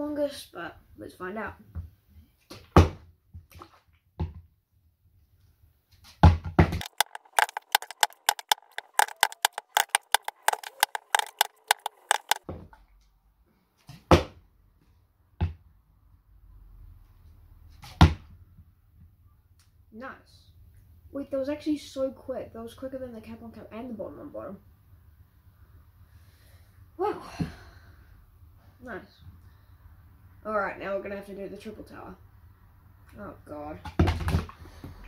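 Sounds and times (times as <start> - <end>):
plastic bottles knocking on wood: 6.8 - 12.4.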